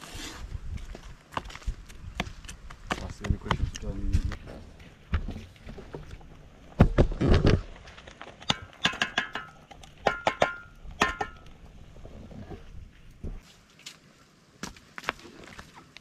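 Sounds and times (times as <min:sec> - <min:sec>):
dishes and utensils handled: 0:08.4 - 0:11.4.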